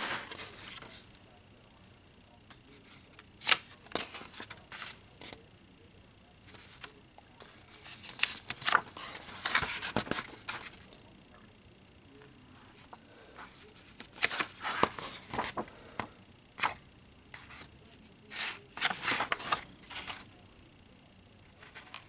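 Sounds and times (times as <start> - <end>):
paper pages turning: 0.0 - 1.1, 2.8 - 5.4, 6.5 - 10.9, 13.4 - 16.8, 17.4 - 17.7, 18.3 - 20.3.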